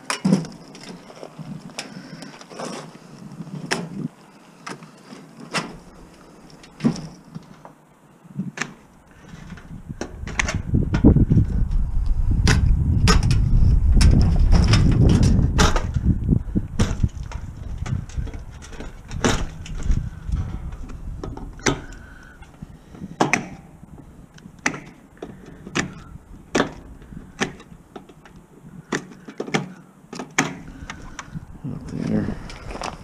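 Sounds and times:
heavy low rumble: 0:09.6 - 0:24.6, 0:30.7 - 0:33.0.

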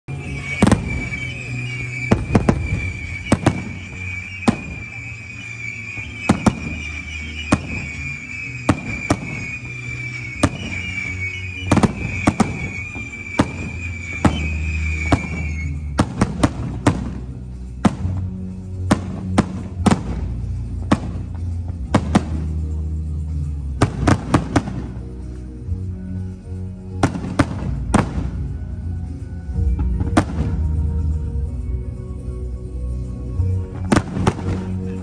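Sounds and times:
background music with bass: 0:00.1 - 0:35.0
firework shells bursting: 0:00.3 - 0:17.2.

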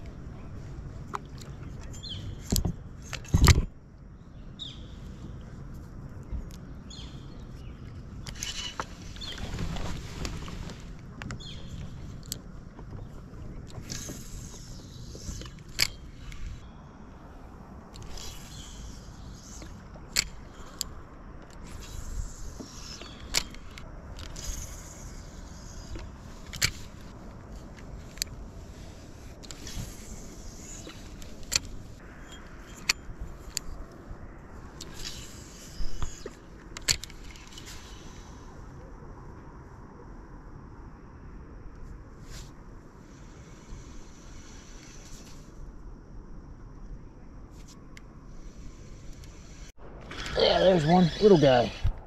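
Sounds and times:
light clicks and scrapes: 0:07.6 - 0:16.6, 0:17.9 - 0:34.0, 0:34.8 - 0:38.8
fishing reel clicks and knocks: 0:17.9 - 0:27.0
low rumble: 0:49.6 - 0:52.0.

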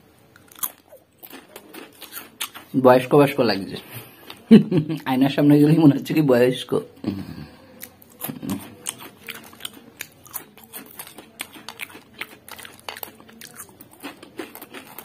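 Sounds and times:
potato chips crunching while chewed: 0:00.4 - 0:02.8, 0:07.8 - 0:15.0.

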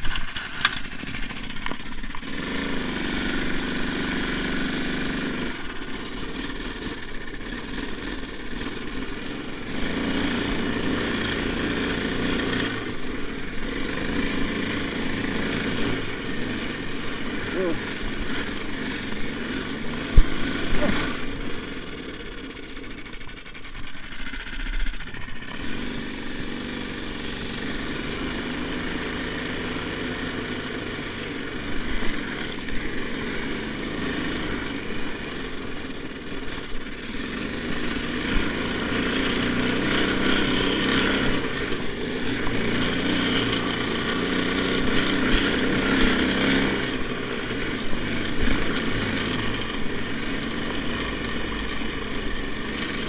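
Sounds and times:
engine running under load: 0:00.0 - 0:53.0.

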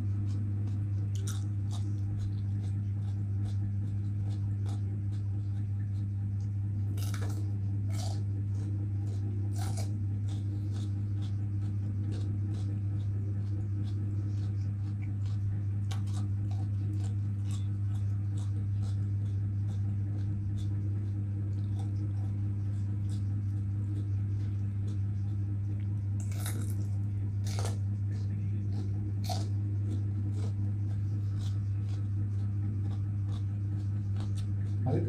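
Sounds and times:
crunchy chewing: 0:00.0 - 0:35.0
low hum: 0:00.0 - 0:35.0.

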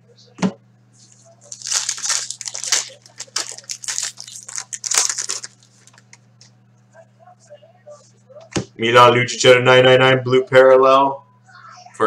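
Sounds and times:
foil wrapper tearing and crinkling: 0:01.4 - 0:06.2.

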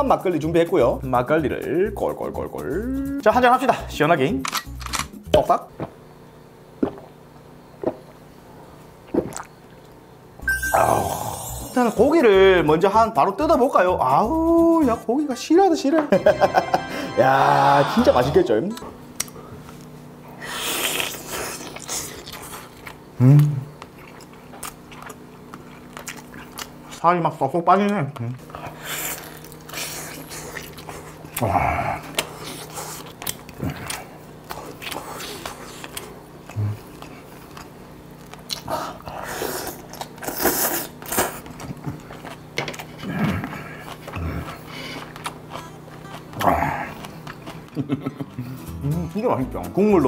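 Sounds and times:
closed-mouth hum: 0:01.9 - 0:14.7, 0:16.2 - 0:27.0, 0:28.1 - 0:49.6
person chewing meat: 0:09.0 - 0:10.0, 0:20.5 - 0:27.0, 0:28.2 - 0:48.7.

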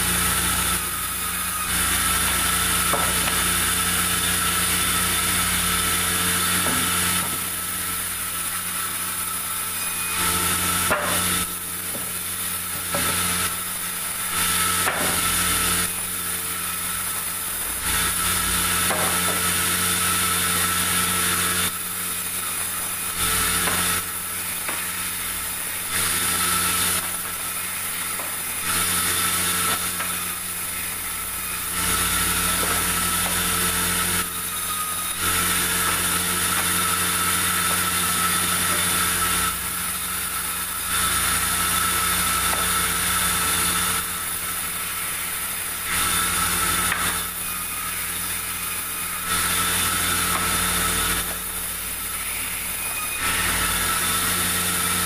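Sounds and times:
band sawmill cutting wood: 0:00.0 - 0:55.0.

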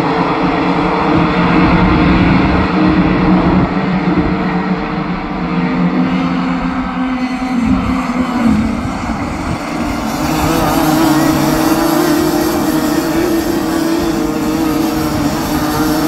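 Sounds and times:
kart engines buzzing: 0:00.0 - 0:16.0.

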